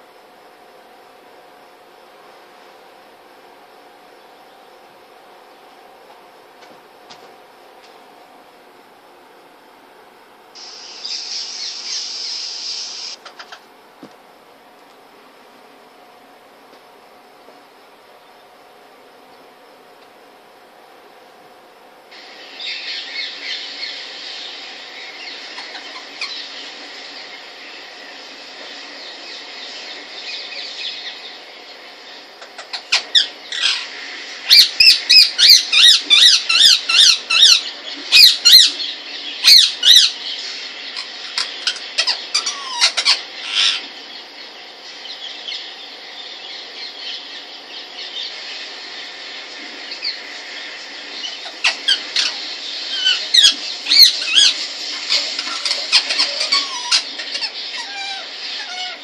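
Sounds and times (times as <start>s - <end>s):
steady background hiss: 0.0s - 59.0s
parakeet squawking: 10.6s - 13.6s, 34.5s - 40.2s, 41.0s - 43.9s, 51.2s - 59.0s.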